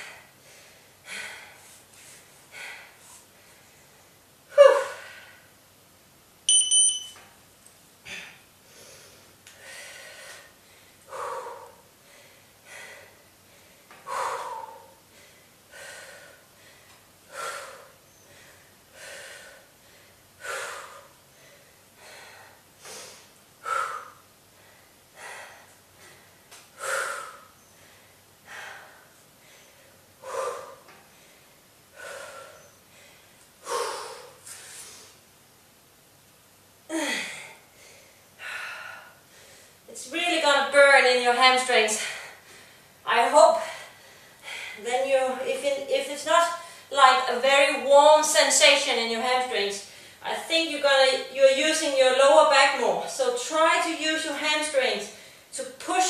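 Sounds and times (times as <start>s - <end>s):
woman breathing hard: 0.0s - 3.9s, 8.0s - 35.2s, 36.9s - 39.9s, 43.6s - 44.8s
short high electronic beep: 6.5s - 7.2s.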